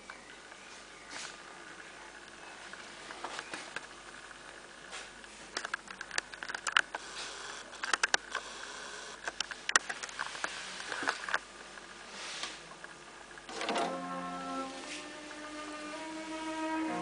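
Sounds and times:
faint hiss: 6.9s - 17.0s.

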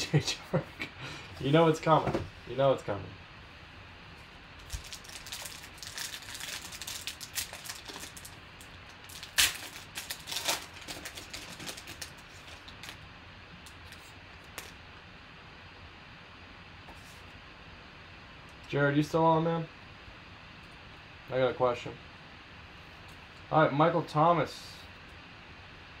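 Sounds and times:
foil wrapper crinkling and tearing: 4.6s - 13.0s.

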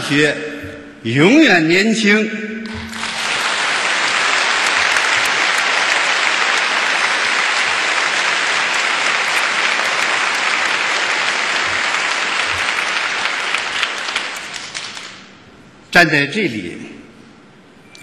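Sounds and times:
audience applause: 2.7s - 15.2s.

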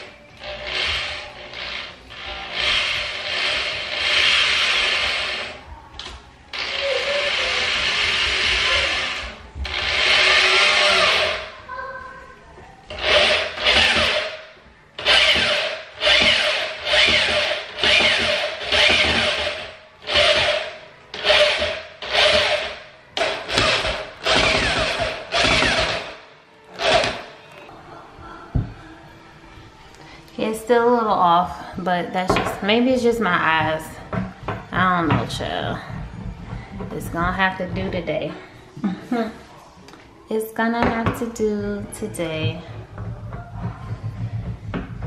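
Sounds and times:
electric drill boring: 0.0s - 5.6s, 6.5s - 11.5s, 12.9s - 27.3s
faint background music: 0.0s - 45.0s.

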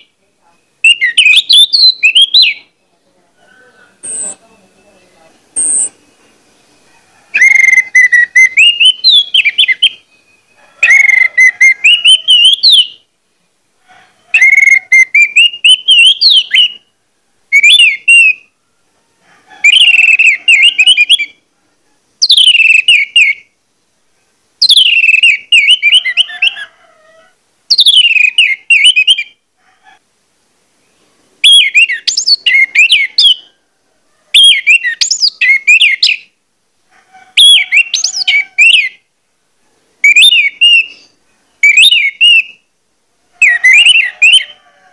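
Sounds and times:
thrush singing whistled notes: 0.0s - 3.0s, 3.9s - 13.1s, 14.4s - 16.9s, 17.5s - 18.6s, 19.6s - 21.4s, 22.2s - 23.6s, 24.6s - 26.6s, 27.7s - 29.4s, 31.4s - 33.6s, 34.4s - 36.3s, 37.4s - 39.0s, 40.0s - 42.7s, 43.4s - 44.6s.

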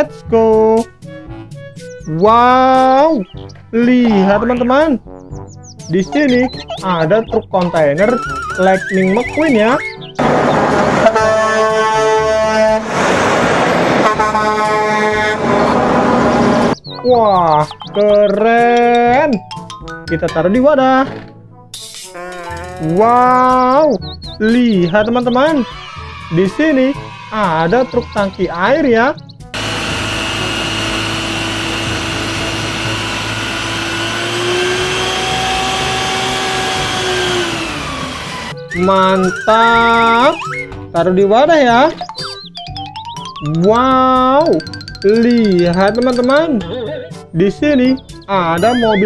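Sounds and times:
trucks driving past: 8.1s - 16.8s, 29.5s - 38.6s
truck air horn blasts: 10.2s - 16.8s
pump mechanical whine: 29.6s - 38.6s.

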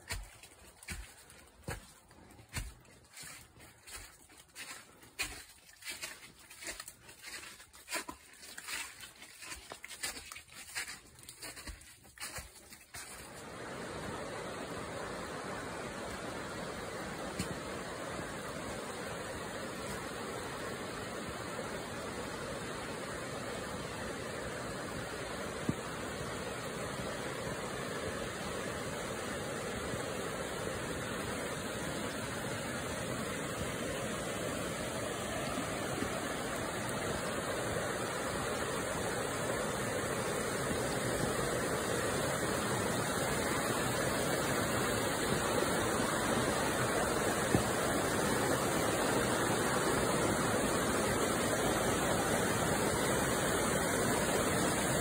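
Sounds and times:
rapids rushing water: 13.1s - 55.0s.

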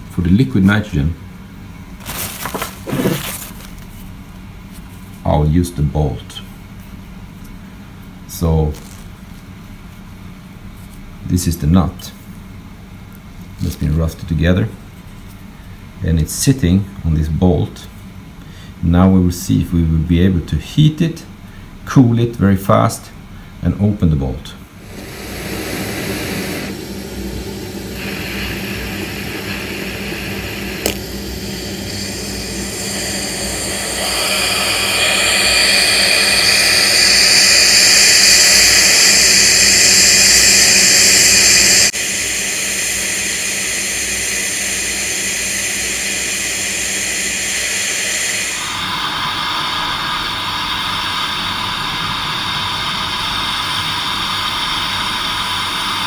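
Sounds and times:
torch flame hissing: 2.0s - 3.8s, 24.8s - 56.0s.

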